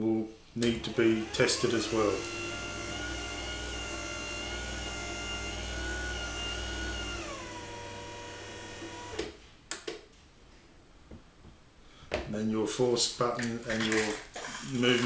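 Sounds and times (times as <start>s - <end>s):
door opener motor whining: 0.6s - 9.3s.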